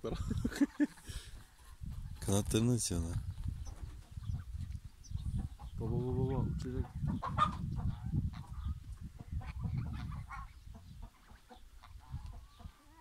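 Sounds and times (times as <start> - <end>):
fowl calling: 9.4 - 13.0.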